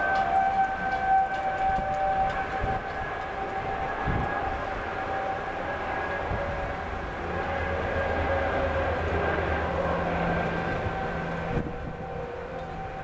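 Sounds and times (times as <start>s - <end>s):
warning siren wailing: 0.0s - 13.0s
wind rumble on microphone: 0.0s - 13.0s.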